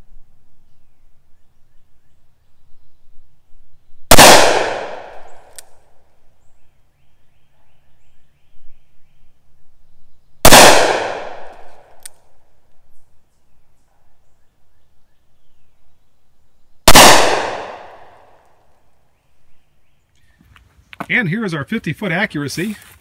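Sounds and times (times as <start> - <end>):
revolver gunshots: 4.1 - 5.4, 10.4 - 11.7, 16.9 - 18.2.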